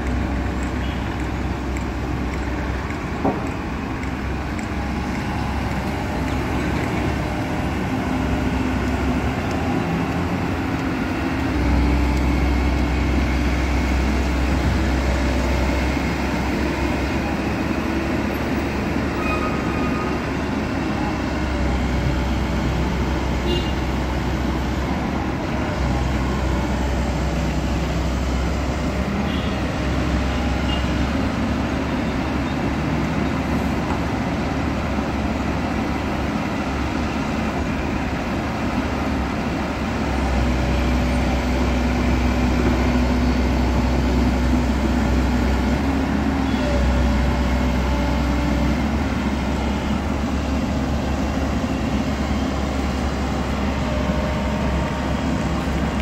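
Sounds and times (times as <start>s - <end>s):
excavator diesel engine droning: 0.0s - 56.0s
steady background noise: 0.0s - 56.0s.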